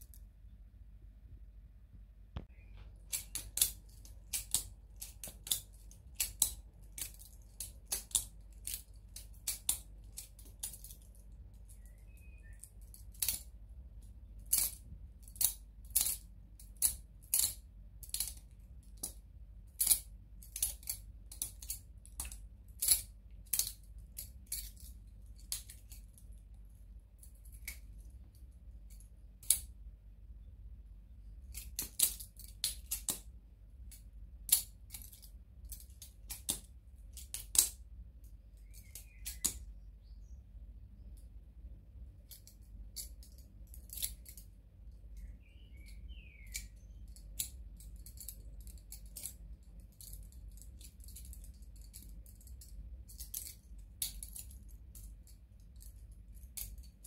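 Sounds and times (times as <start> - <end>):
balisong clacking: 2.4 - 29.8.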